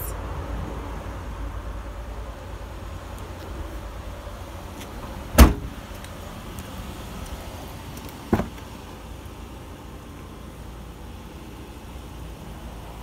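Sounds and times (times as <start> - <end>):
car door unlatching clunk: 4.8 - 5.8, 8.3 - 8.6
car liftgate slamming shut: 5.3 - 5.8.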